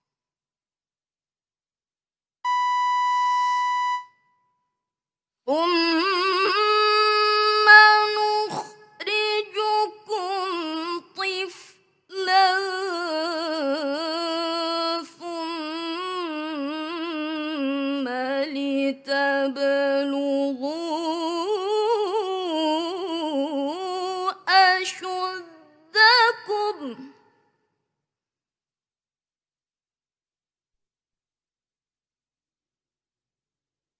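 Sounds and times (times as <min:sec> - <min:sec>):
woman reciting melodically: 0:05.5 - 0:27.3.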